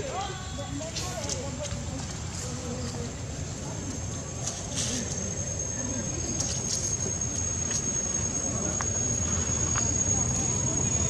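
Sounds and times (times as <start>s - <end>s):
high-pitched insect drone: 2.5s - 11.0s.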